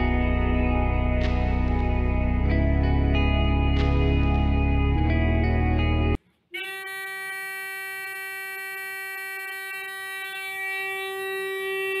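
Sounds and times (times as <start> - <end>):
electronic buzzer tone: 6.6 - 12.0.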